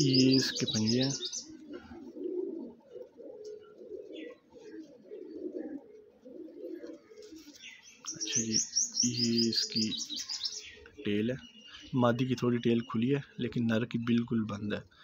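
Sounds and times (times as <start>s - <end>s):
pigeons cooing: 0.0s - 14.3s
faint chirps: 7.5s - 12.0s.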